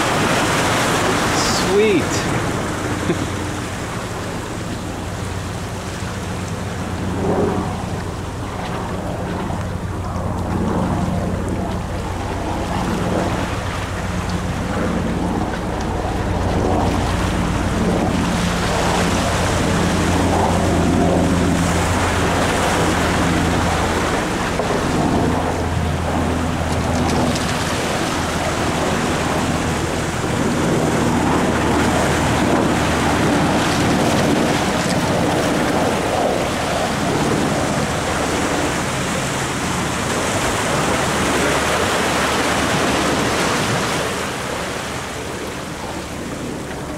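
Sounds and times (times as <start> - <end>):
sea surf breaking over rocks: 0.0 - 46.9
wind buffeting microphone: 0.0 - 46.9.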